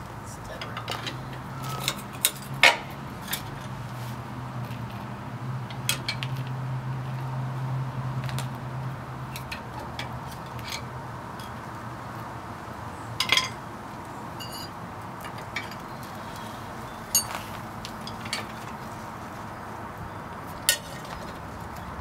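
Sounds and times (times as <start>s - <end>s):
wrench clinking on bolts: 13.2s - 13.6s, 14.4s - 15.8s, 17.1s - 18.8s.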